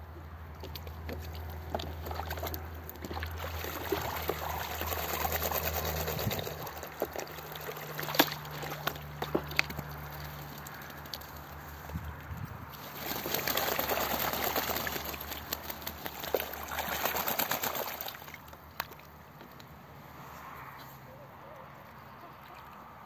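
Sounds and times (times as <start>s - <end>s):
ducks splashing water in a tub: 0.5s - 11.9s, 12.7s - 19.3s
water pouring from a hose: 1.2s - 11.7s, 12.7s - 18.6s.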